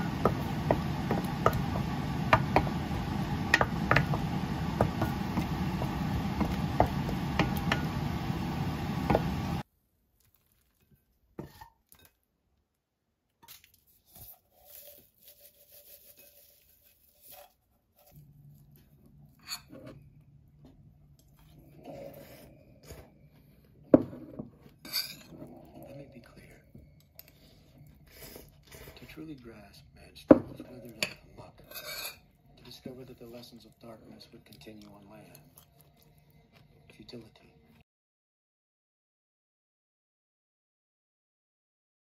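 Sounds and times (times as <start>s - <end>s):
spatula scraping a metal pan: 14.2s - 17.6s, 24.8s - 25.5s, 31.6s - 32.3s
spoon scraping ceramic bowl: 19.3s - 20.0s, 24.3s - 25.6s, 31.0s - 32.3s.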